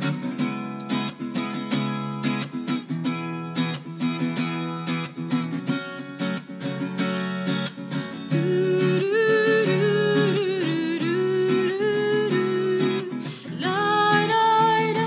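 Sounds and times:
acoustic guitar strumming: 0:00.0 - 0:15.0
woman singing: 0:08.2 - 0:15.0.

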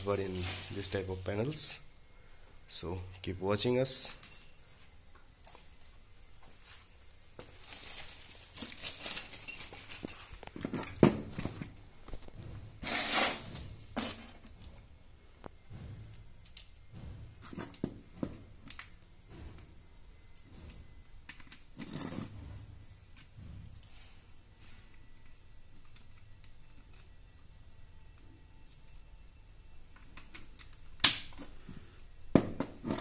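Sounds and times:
rustles and crinkles: 0:00.0 - 0:01.1, 0:04.1 - 0:16.7.

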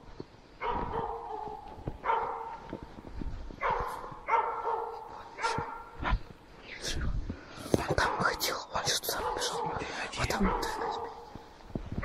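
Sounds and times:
dog barking: 0:00.6 - 0:02.7, 0:03.6 - 0:06.1, 0:08.0 - 0:11.5.

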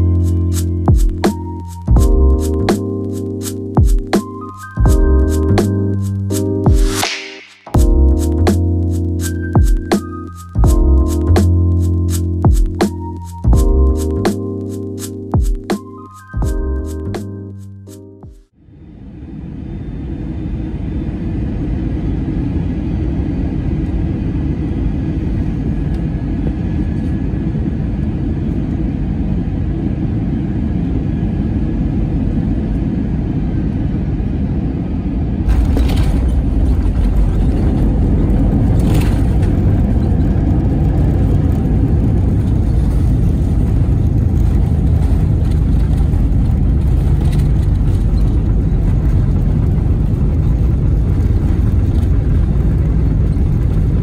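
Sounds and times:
aircraft cabin engine rush: 0:00.0 - 0:16.0, 0:18.7 - 0:54.0.

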